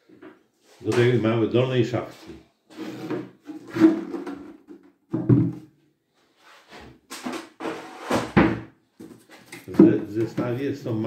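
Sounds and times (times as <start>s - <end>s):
wooden knocks and scrapes: 2.2s - 5.6s
hollow wooden thud: 5.1s - 5.7s.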